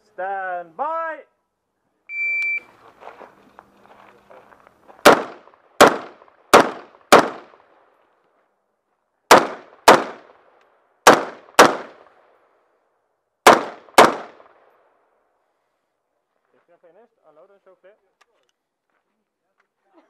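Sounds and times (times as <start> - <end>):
rifle shots: 5.0 - 7.8, 9.3 - 12.2, 13.4 - 14.8.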